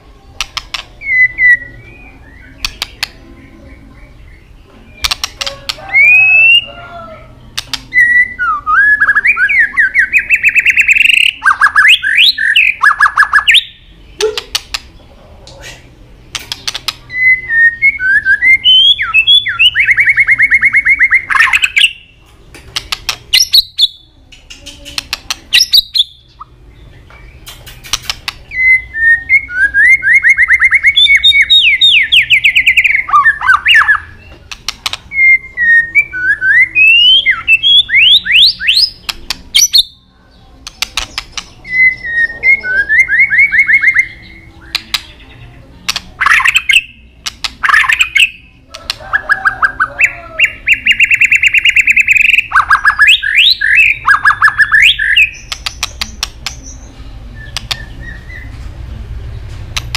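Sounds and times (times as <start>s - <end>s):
bird singing trilled notes: 0.0s - 15.2s, 16.1s - 59.9s
bird clicking calls: 0.4s - 0.9s, 2.5s - 3.2s, 5.0s - 6.6s, 7.5s - 8.1s, 10.1s - 15.6s, 16.3s - 17.1s, 19.2s - 26.5s, 27.1s - 28.7s, 30.6s - 35.3s, 37.4s - 39.9s, 40.6s - 41.9s, 44.7s - 45.2s, 45.8s - 56.8s, 57.5s - 58.5s.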